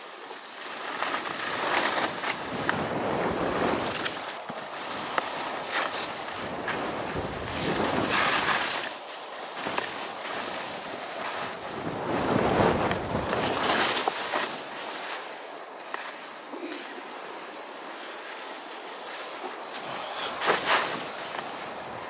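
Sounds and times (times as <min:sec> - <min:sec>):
skis scraping over snow: 0:00.0 - 0:22.0
wind on microphone: 0:02.0 - 0:08.9, 0:09.7 - 0:14.8.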